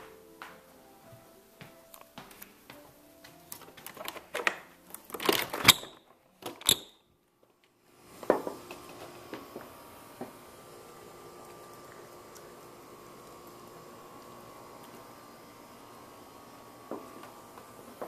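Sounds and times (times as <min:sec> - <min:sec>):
faint steady hiss: 0:00.0 - 0:18.0
door opening clicks and knocks: 0:03.8 - 0:07.0.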